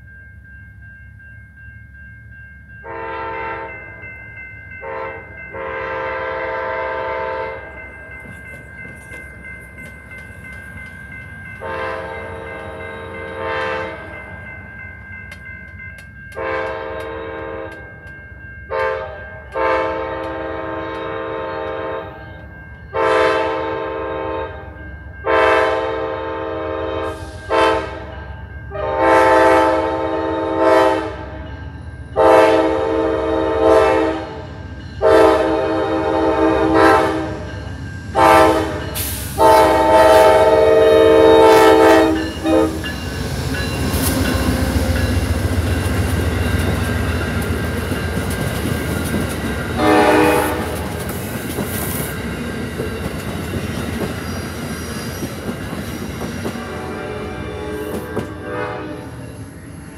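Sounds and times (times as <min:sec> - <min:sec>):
locomotive air horn blasts: 0:02.8 - 0:03.8, 0:04.8 - 0:07.7, 0:11.6 - 0:14.1, 0:16.4 - 0:17.9, 0:18.7 - 0:22.2, 0:23.0 - 0:31.4, 0:32.2 - 0:34.4, 0:35.0 - 0:37.5, 0:38.2 - 0:43.0, 0:49.8 - 0:51.0, 0:56.5 - 0:59.2.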